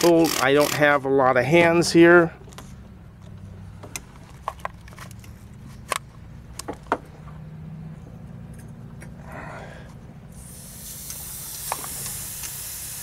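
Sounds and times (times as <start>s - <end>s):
hiss: 10.4s - 13.0s.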